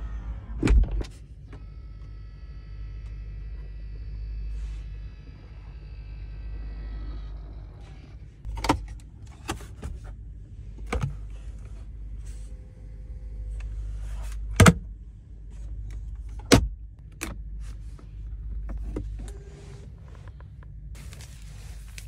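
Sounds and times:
low steady hum: 0:00.0 - 0:22.0
car compartment lids clicking shut: 0:14.5 - 0:14.9.

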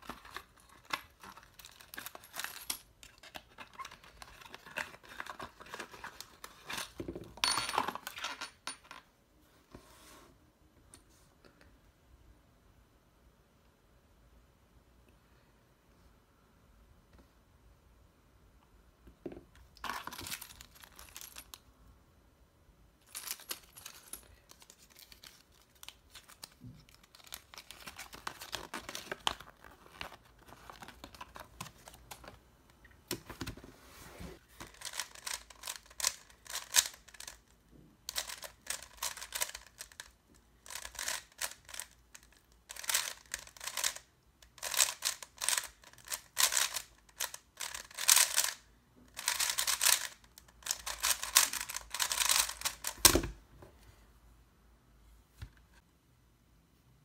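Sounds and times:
paper and packaging rustling: 0:00.0 - 0:07.1, 0:23.3 - 0:32.4, 0:33.2 - 0:37.4
puzzle cube clicking: 0:44.6 - 0:48.6, 0:49.2 - 0:53.1.

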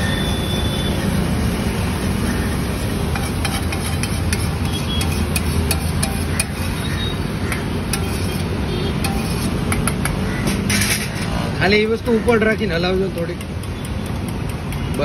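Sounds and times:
metal spatula scraping a griddle: 0:02.1 - 0:12.6.

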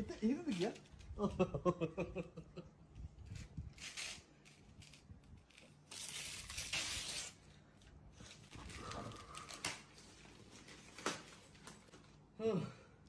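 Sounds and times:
wrapping paper tearing: 0:03.2 - 0:11.8.

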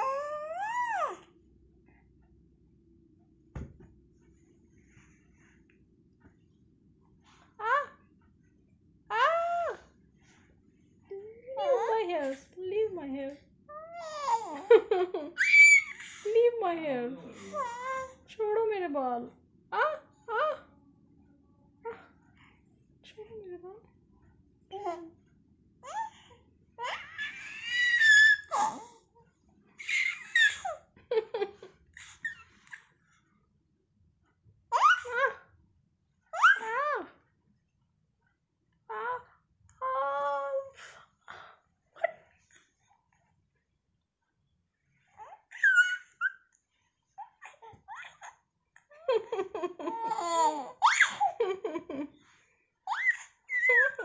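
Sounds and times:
baby squealing: 0:15.4 - 0:16.0, 0:45.5 - 0:46.4, 0:50.8 - 0:51.3, 0:52.9 - 0:53.9
baby laughing: 0:47.2 - 0:52.1, 0:52.9 - 0:54.0.

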